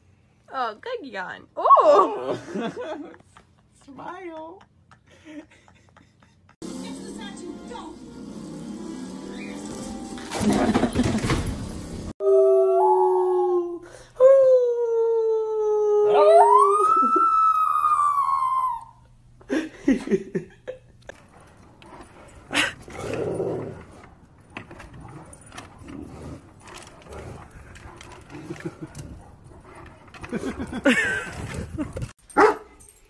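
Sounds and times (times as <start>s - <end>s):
dog howling: 12.2s - 19.0s.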